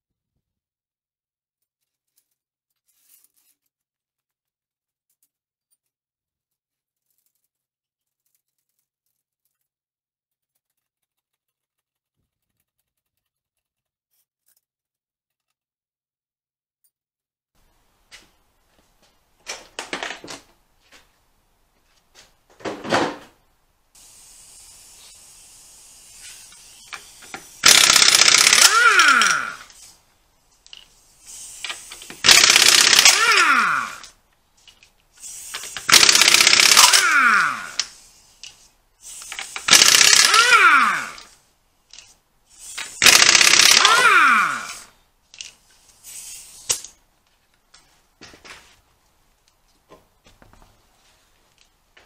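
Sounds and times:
impact wrench hammering: 26.9s - 29.7s, 31.7s - 34.1s, 35.6s - 38.0s, 39.4s - 41.3s, 42.8s - 44.8s.

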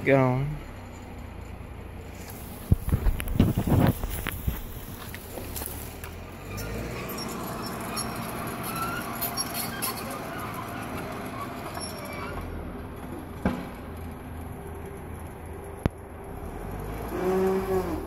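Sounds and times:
diesel engine and tracks running: 0.0s - 18.0s
crackles: 2.1s - 6.7s.

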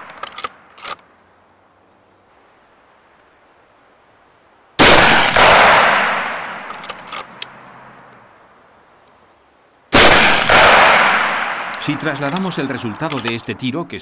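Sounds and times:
rifle shot: 4.8s - 7.3s, 9.9s - 12.6s.

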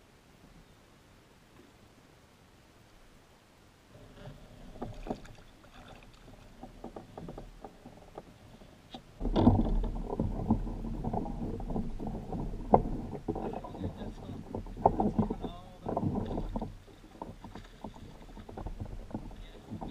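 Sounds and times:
water sounds at boat: 0.0s - 19.9s
gear knocking against kayak hull: 4.6s - 19.9s.

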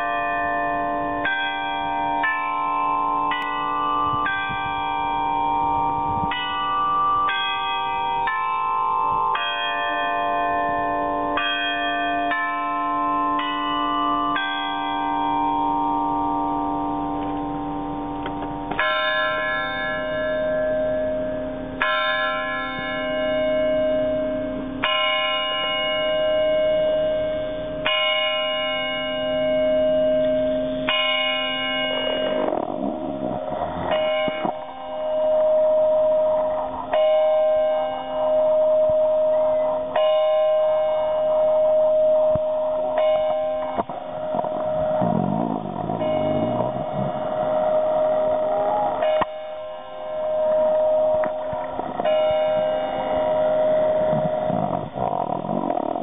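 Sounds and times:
single bell striking slowly: 0.0s - 55.0s
bells chiming a tune: 0.0s - 56.0s.

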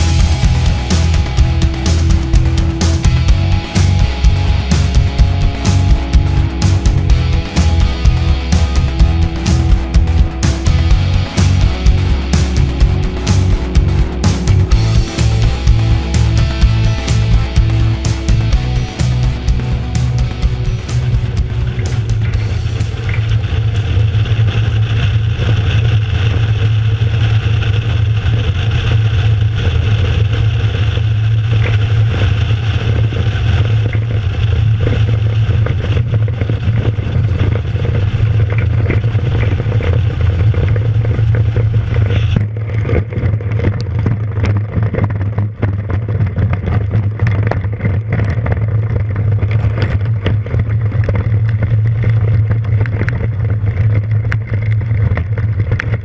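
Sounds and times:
light aircraft engine drone: 0.0s - 45.6s
wheels knocking and rattling on grass: 42.4s - 56.0s.

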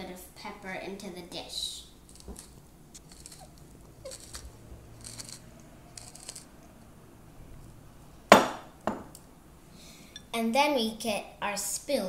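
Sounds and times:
pepper mill grinding: 2.0s - 6.5s.

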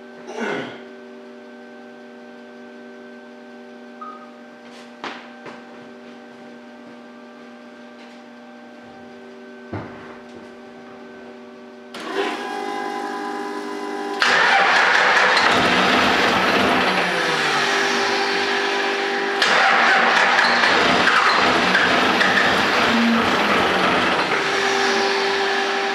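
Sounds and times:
diesel engine running: 12.1s - 25.9s
diesel engine starter cranking: 14.2s - 17.4s, 19.4s - 24.4s.

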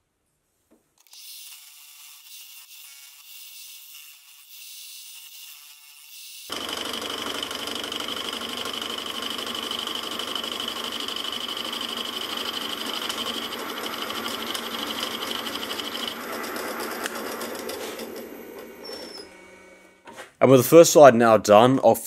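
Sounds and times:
milling cutter chattering and whining: 6.5s - 19.9s.

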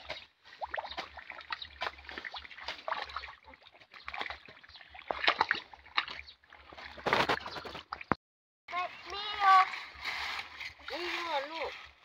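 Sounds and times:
water splashing: 0.0s - 8.2s.

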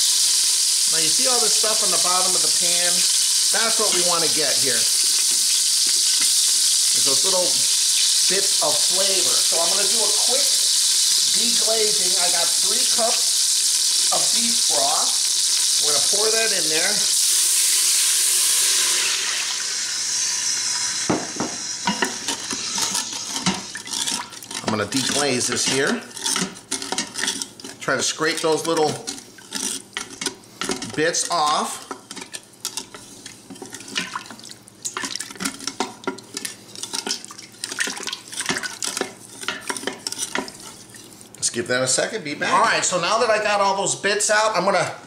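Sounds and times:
broth sizzling in hot pot: 0.0s - 41.6s
spatula stirring liquid: 1.1s - 16.5s, 21.9s - 41.4s
spatula scraping pot bottom: 21.9s - 34.4s, 35.0s - 41.0s
liquid sloshing: 32.8s - 41.4s.

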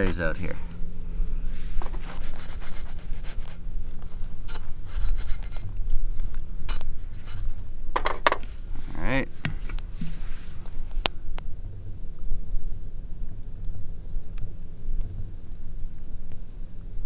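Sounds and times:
steady low rumble: 0.0s - 17.0s
fork scraping a frying pan: 4.4s - 5.7s.

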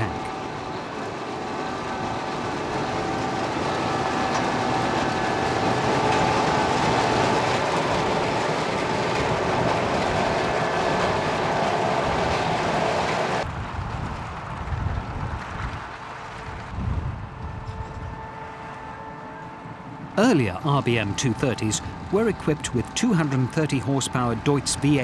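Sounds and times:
harvester engine and machinery whining: 0.0s - 25.0s.

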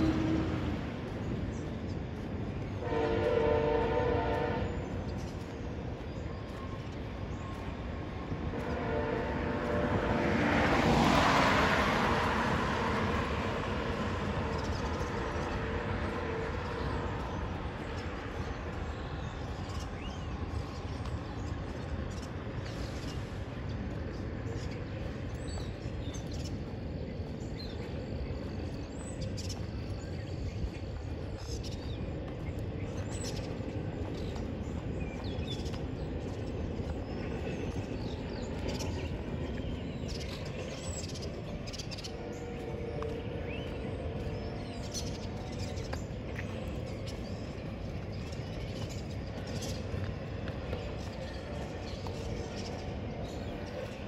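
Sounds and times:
birds chirping: 0.0s - 54.0s
faint steady tones: 11.8s - 54.0s
steady low rumble: 11.8s - 54.0s.

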